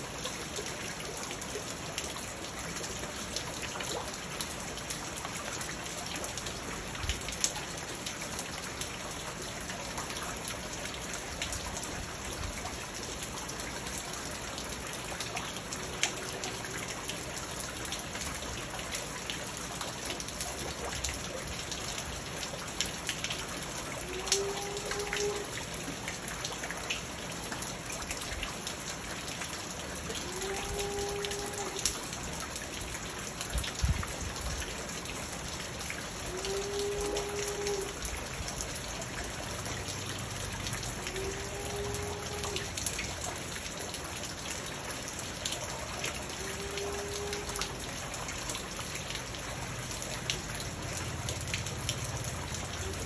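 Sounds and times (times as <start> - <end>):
rain pattering on a pond: 0.0 - 53.0
water drip ticks: 0.1 - 53.0.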